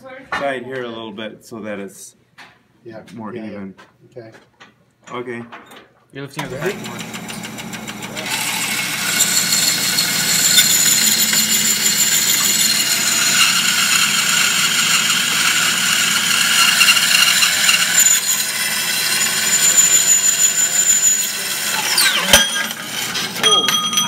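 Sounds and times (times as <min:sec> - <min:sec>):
bandsaw whine: 0:06.4 - 0:24.0
blade rasping through metal: 0:06.7 - 0:24.0.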